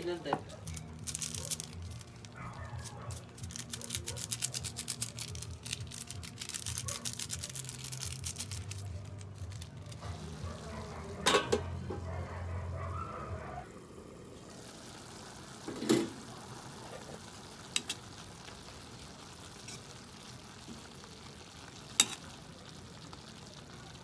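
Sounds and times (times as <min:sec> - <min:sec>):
food sizzling in a wok: 0:03.2 - 0:12.1, 0:13.7 - 0:24.0
metal pan lid clank: 0:11.2 - 0:12.0.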